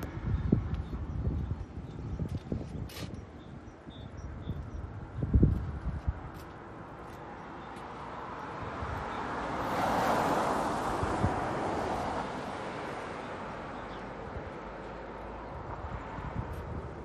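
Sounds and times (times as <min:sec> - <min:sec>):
road vehicle passing by: 0:06.7 - 0:17.0.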